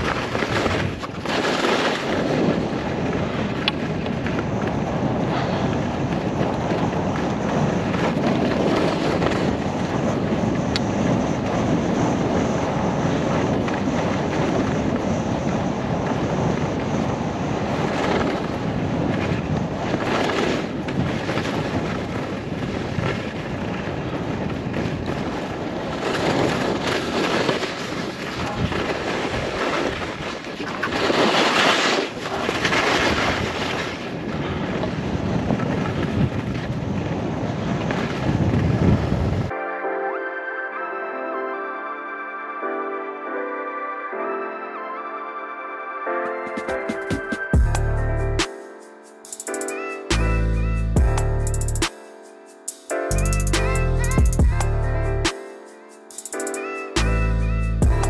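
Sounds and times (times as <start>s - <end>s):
skis scraping over snow: 0.0s - 39.5s
wind on microphone: 0.0s - 39.5s.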